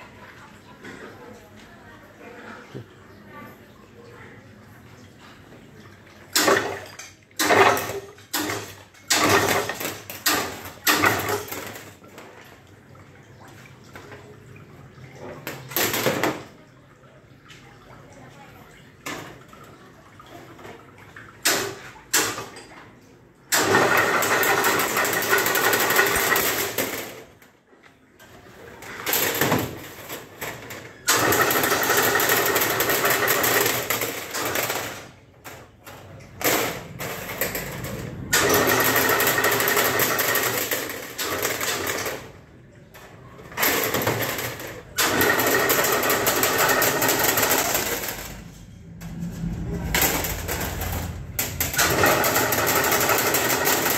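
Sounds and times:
mesh weaving machine running: 31.1s - 34.6s, 37.0s - 42.2s, 43.6s - 53.9s.

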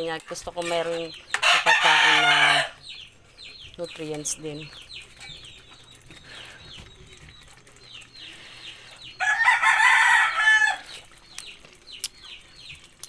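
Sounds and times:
rooster crowing: 1.4s - 2.8s, 9.2s - 10.9s.

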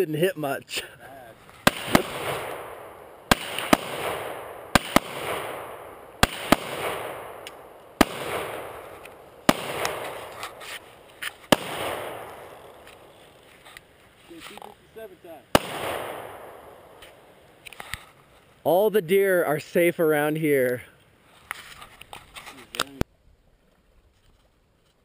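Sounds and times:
handgun shots echoing: 1.7s - 13.1s, 15.6s - 17.2s.

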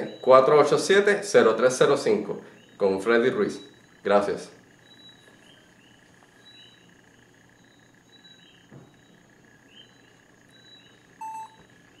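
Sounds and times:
frogs chirping: 0.0s - 12.0s
steady high whine: 0.0s - 12.0s
short electronic beep: 11.2s - 11.6s.

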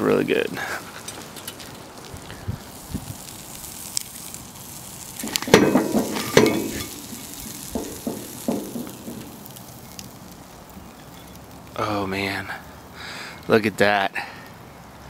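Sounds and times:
sandwich sizzling in skillet: 0.0s - 15.0s
spatula scraping pan: 5.2s - 9.5s.

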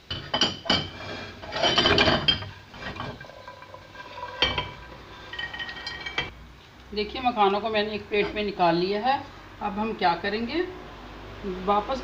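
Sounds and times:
spatula scraping a pan: 0.7s - 6.3s.

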